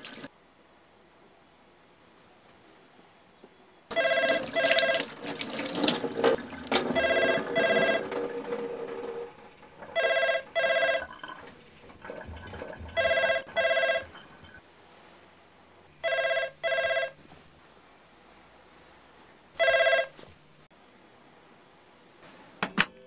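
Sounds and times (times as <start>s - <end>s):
running water: 0.0s - 0.3s, 3.9s - 14.6s
telephone ringing: 3.9s - 14.6s, 16.0s - 17.2s, 19.6s - 20.2s.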